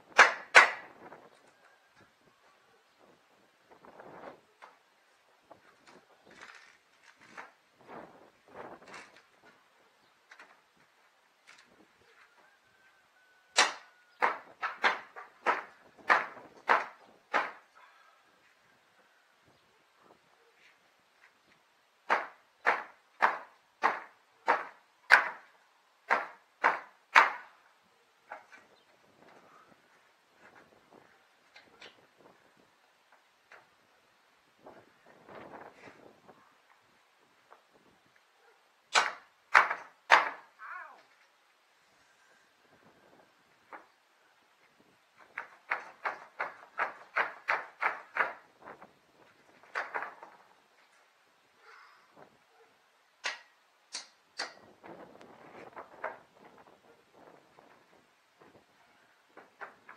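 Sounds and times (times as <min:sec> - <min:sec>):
hammer striking wooden boards: 0:13.6 - 0:17.6, 0:22.1 - 0:25.5, 0:26.1 - 0:27.4.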